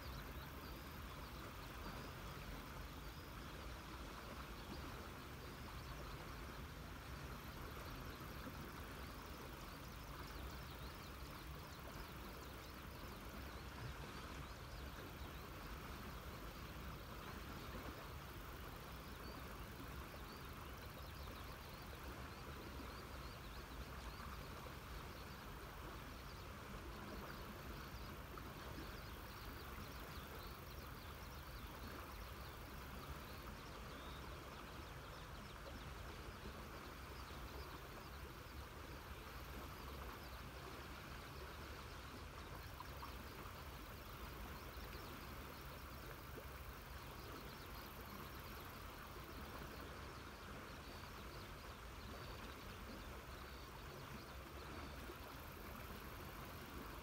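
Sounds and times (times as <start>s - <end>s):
river flowing: 0.0s - 57.0s.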